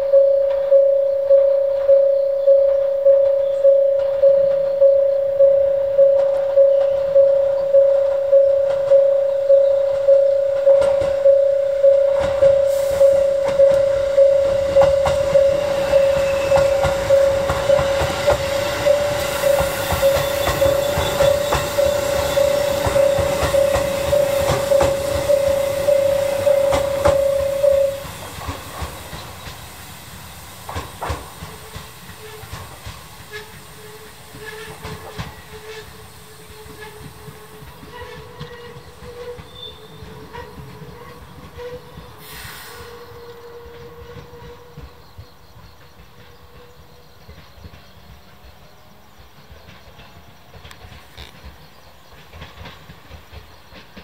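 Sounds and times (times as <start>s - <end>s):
level crossing bell ringing: 0.0s - 28.1s
train wheels clattering over rails: 1.4s - 54.0s.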